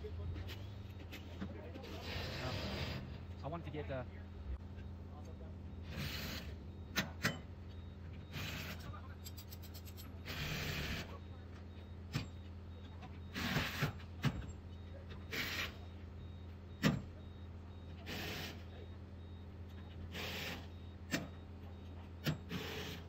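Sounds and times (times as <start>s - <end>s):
impact wrench bursts: 22.5s - 23.0s.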